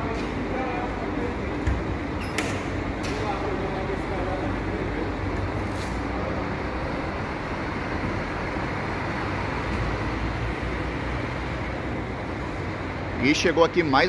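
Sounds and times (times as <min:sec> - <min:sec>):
diesel coach engine humming: 0:02.8 - 0:14.0.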